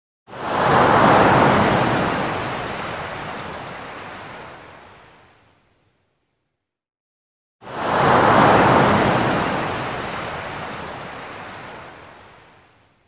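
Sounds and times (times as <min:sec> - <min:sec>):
ocean wave breaking: 0:00.3 - 0:04.9, 0:07.6 - 0:12.5.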